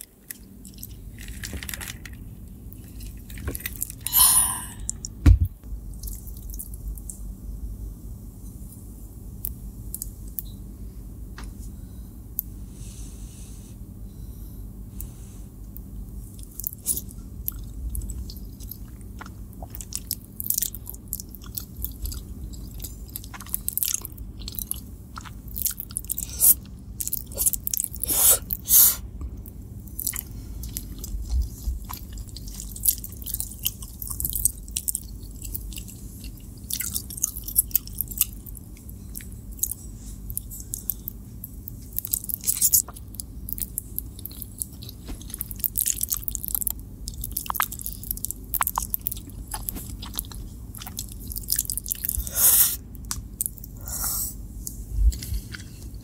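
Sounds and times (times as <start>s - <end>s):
person slurping and chewing noodles: 16.4s - 29.0s, 29.9s - 54.4s
wet mouth clicks and smacks: 42.0s - 52.2s.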